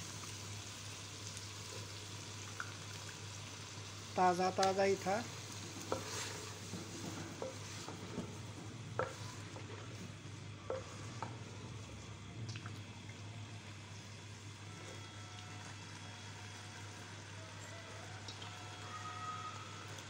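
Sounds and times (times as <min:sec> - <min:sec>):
meat sizzling in oil: 0:00.0 - 0:12.2
wooden spoon stirring food: 0:04.6 - 0:12.2.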